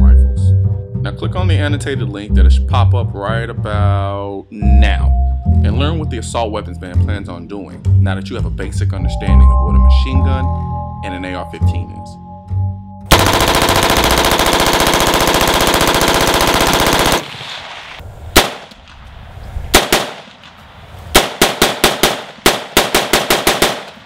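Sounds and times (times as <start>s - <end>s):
automatic rifle burst: 13.1s - 17.4s, 21.2s - 24.0s
rapid semi-automatic gunshots: 13.1s - 17.6s, 18.4s - 19.0s, 19.7s - 24.0s
rifle single shots: 18.4s - 19.1s, 19.7s - 24.0s.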